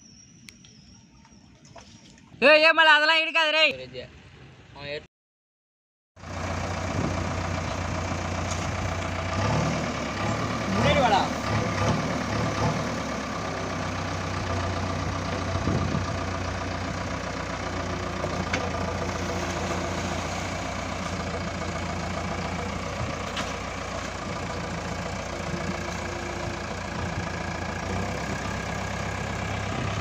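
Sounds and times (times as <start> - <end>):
diesel engine running: 6.2 - 30.0.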